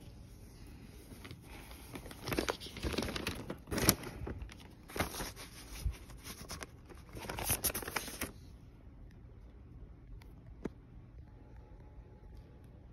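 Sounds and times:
paper sleeve rustling and scraping: 0:00.0 - 0:08.5.

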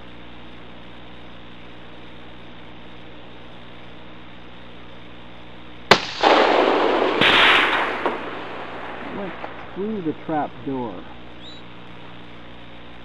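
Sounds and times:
steady low hum: 0:00.0 - 0:13.0
rifle shot: 0:05.9 - 0:09.8.

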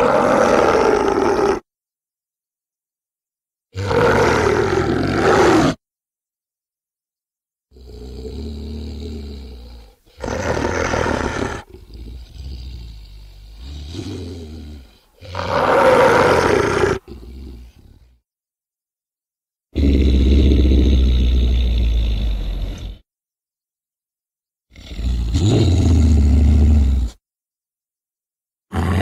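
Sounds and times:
grunting growls: 0:00.0 - 0:01.6, 0:03.8 - 0:05.8, 0:07.7 - 0:18.2, 0:19.8 - 0:23.0, 0:24.7 - 0:27.2, 0:28.7 - 0:29.0
cartoon alligator roars: 0:00.0 - 0:01.7, 0:03.8 - 0:05.8, 0:07.7 - 0:18.1, 0:19.8 - 0:23.0, 0:24.7 - 0:27.2, 0:28.7 - 0:29.0.

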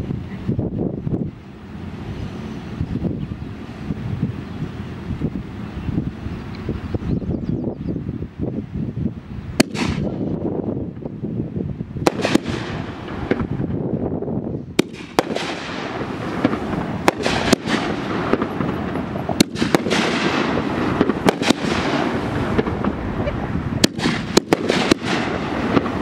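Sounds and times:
firework hiss and crackle: 0:08.3 - 0:26.0
firework bangs: 0:09.5 - 0:11.1, 0:12.0 - 0:26.0.

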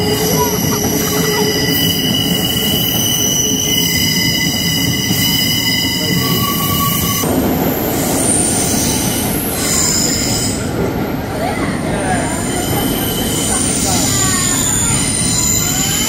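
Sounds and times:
high steady squealing tones: 0:00.0 - 0:07.3
train rumble: 0:00.0 - 0:16.0.

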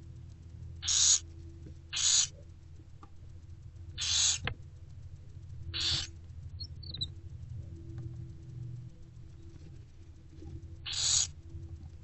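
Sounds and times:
steady low hum: 0:00.0 - 0:12.0
owlets hissing food-begging calls: 0:00.8 - 0:01.2, 0:01.9 - 0:02.3, 0:04.0 - 0:04.4, 0:05.8 - 0:06.1, 0:10.9 - 0:11.3.

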